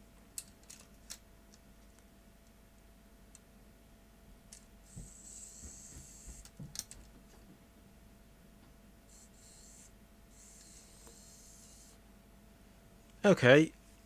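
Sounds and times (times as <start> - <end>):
tape motor whirring: 4.9 - 6.6, 9.1 - 12.0.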